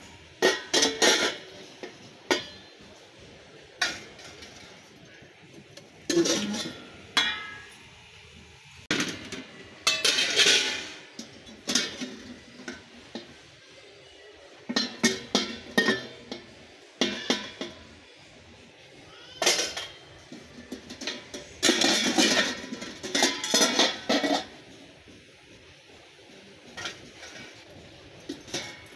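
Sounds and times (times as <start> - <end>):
plastic containers clattering: 0.4 - 3.0, 5.6 - 7.7, 8.9 - 13.4, 19.4 - 24.8.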